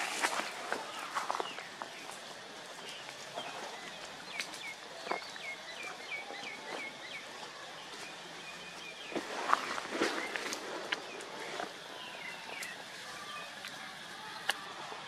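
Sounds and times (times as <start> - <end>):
faint ticks in leaf litter: 0.0 - 15.0.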